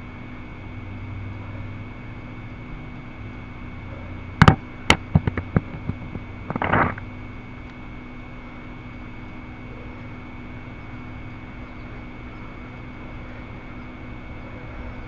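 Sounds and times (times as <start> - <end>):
steady electrical hum: 0.0 - 15.0
rustling crackle: 4.4 - 7.0
sharp clicks: 4.4 - 7.0.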